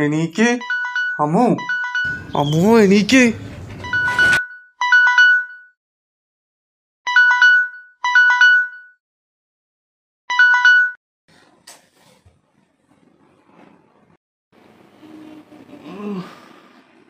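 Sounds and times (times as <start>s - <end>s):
phone alarm chime: 0.6s - 2.4s, 3.8s - 5.8s, 7.1s - 9.0s, 10.3s - 11.0s.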